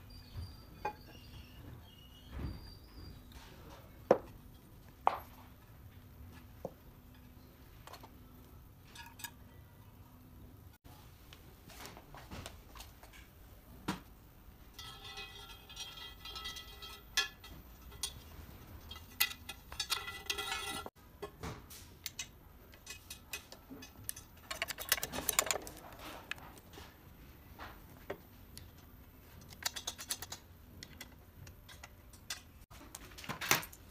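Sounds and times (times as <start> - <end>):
metal scraping: 14.7 - 21.0.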